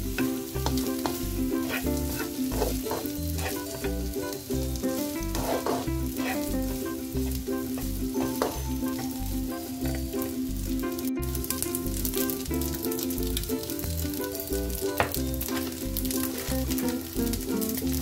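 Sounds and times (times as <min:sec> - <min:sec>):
background music with low beat: 0:00.0 - 0:18.0
rice sizzling in a wok: 0:00.0 - 0:18.0
plastic spatula scraping wok: 0:00.6 - 0:07.0, 0:15.5 - 0:17.0.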